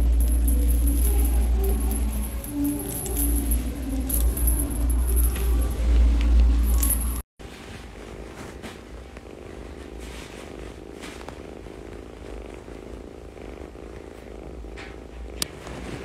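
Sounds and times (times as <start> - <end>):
kitten purring: 0.0 - 16.0.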